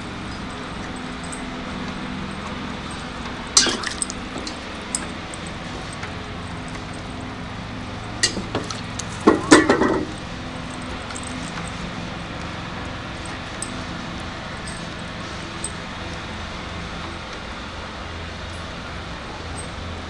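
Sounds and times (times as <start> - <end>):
metal dog bowl clanking on wood: 3.6 - 6.0, 8.2 - 10.3.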